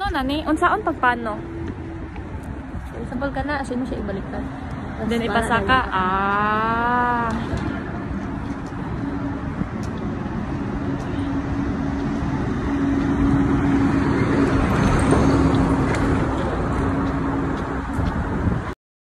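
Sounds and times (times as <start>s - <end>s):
city traffic rumble: 0.0s - 18.8s.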